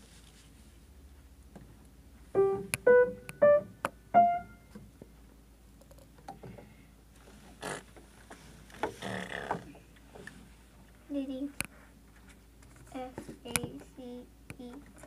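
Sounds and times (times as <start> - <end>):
piano single notes: 2.4 - 4.8.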